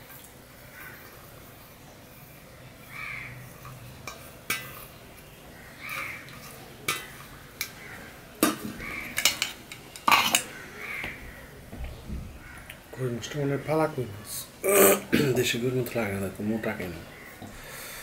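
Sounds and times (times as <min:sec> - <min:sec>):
crow cawing: 0:00.7 - 0:01.0, 0:02.9 - 0:03.4, 0:05.5 - 0:06.3, 0:07.7 - 0:09.3, 0:10.5 - 0:11.5, 0:12.4 - 0:12.7
steel bowl and plate clinking: 0:03.6 - 0:05.0, 0:05.9 - 0:07.8, 0:08.4 - 0:10.6
steel bowl clattering: 0:03.6 - 0:05.0, 0:05.9 - 0:10.6.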